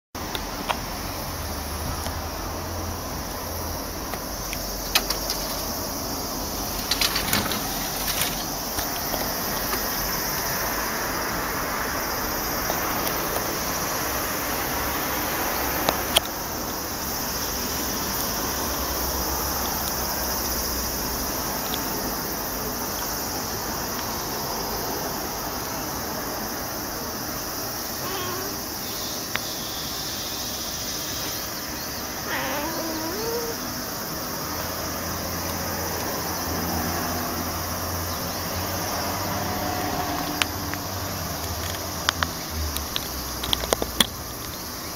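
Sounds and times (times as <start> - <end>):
outdoor background noise: 0.1 - 44.9
cat meowing: 28.0 - 28.7, 32.2 - 33.7.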